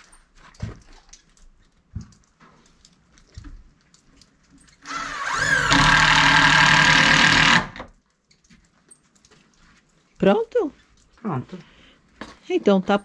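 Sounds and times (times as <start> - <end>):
cordless drill motor spinning: 4.8 - 7.9.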